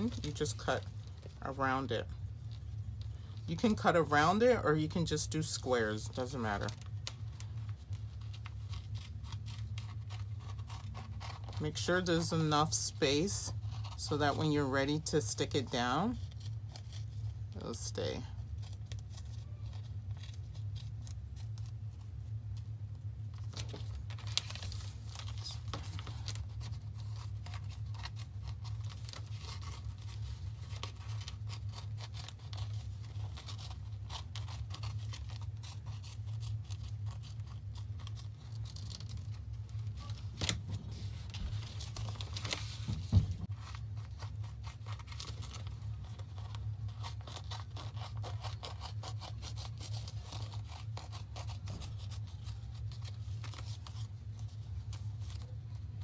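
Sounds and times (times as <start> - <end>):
plastic sheet crinkling: 0.0 - 14.4, 15.1 - 56.0
steady low hum: 0.0 - 56.0
scissors snipping paper: 8.3 - 14.5, 23.6 - 40.6, 43.6 - 54.1.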